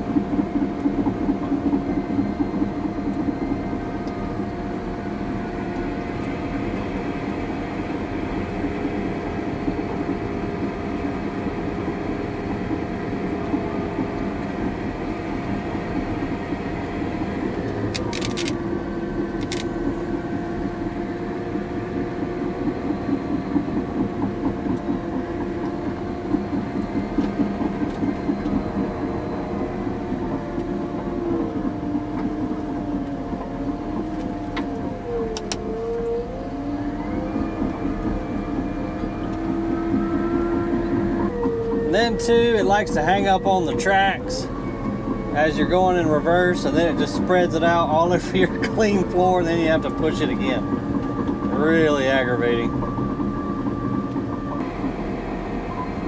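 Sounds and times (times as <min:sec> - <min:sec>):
tracks rattling: 0:00.0 - 0:35.7, 0:37.2 - 0:56.0
diesel engine running: 0:00.0 - 0:56.0
sharp clicks: 0:17.9 - 0:18.6, 0:19.4 - 0:19.7.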